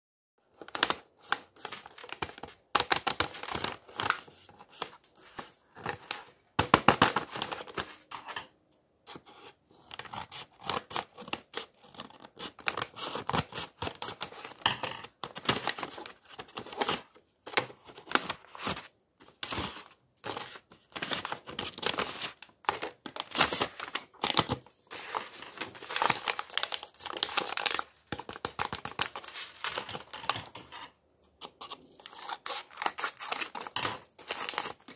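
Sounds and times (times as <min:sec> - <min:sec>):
paper rustling and crinkling: 0:00.6 - 0:08.5, 0:09.9 - 0:34.9
scissors snipping paper: 0:31.4 - 0:34.9.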